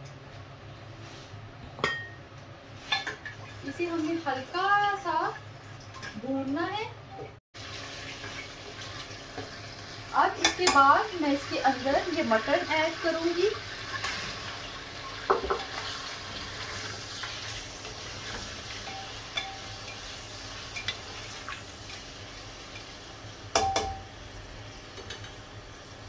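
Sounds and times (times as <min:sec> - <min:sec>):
meat sizzling in hot oil: 0:07.6 - 0:26.0
knock on metal pot: 0:23.6 - 0:24.0.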